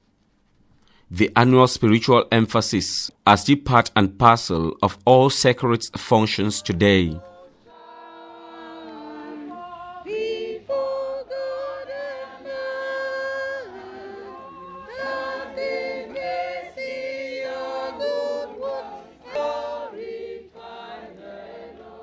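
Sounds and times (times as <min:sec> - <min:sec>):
women singing unaccompanied: 0:06.6 - 0:22.0.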